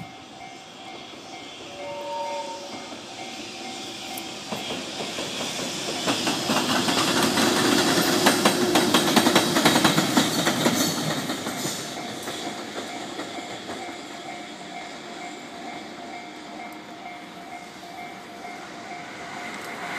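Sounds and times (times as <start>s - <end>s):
locomotive hum: 0.0s - 19.9s
train wheels clattering on rails: 0.0s - 19.9s.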